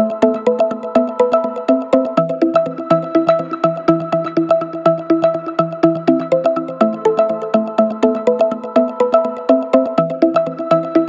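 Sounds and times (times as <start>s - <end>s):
plucked synthesizer notes: 0.0s - 11.0s.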